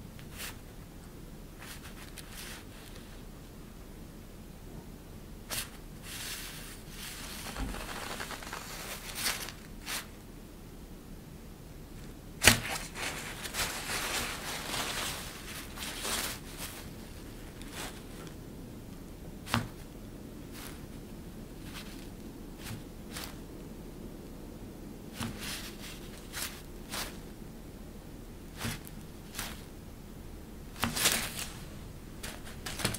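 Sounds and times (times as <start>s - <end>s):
fabric sheet rustling: 5.6s - 10.1s, 12.4s - 18.4s
fabric snapping: 7.4s - 9.6s, 12.4s - 13.0s, 32.2s - 32.9s.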